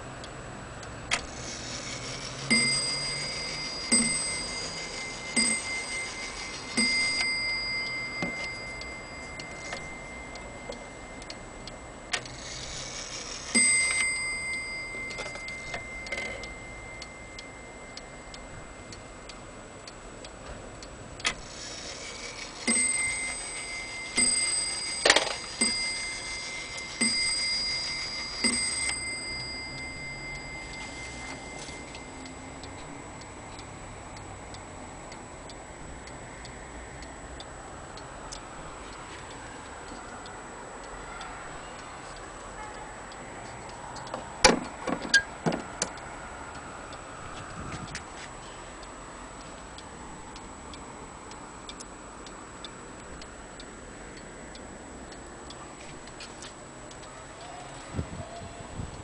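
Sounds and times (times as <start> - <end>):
clock gong ringing: 1.3 - 19.3, 21.4 - 33.0.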